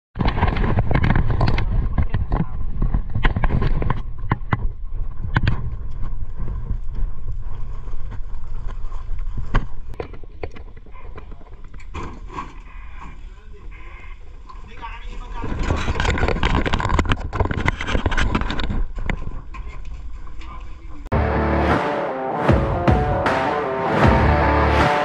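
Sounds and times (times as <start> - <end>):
handling rumble on microphone: 0.2 - 21.0.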